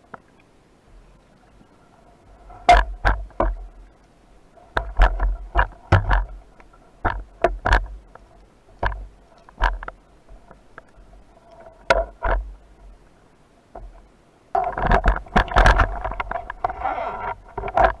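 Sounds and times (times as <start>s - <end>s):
underwater clicks and knocks: 2.5s - 3.8s, 4.6s - 13.0s, 13.7s - 18.0s.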